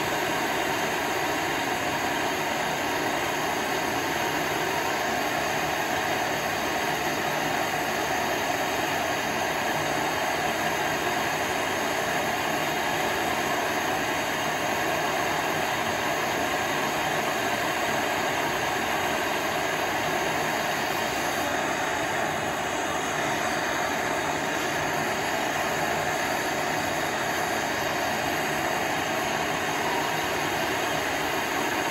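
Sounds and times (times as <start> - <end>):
gas torch hissing: 0.0 - 31.9.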